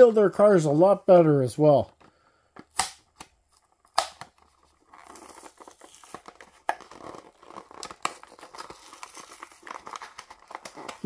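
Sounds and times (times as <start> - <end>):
sharp plastic snaps: 2.6 - 4.4
card tearing: 2.7 - 11.0
plastic packaging crinkling: 3.4 - 11.0.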